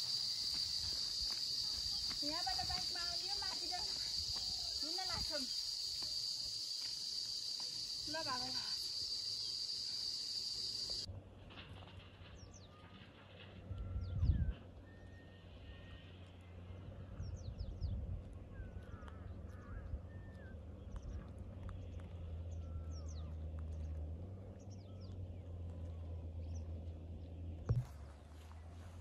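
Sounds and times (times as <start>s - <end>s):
small birds chirping: 0.0s - 11.1s.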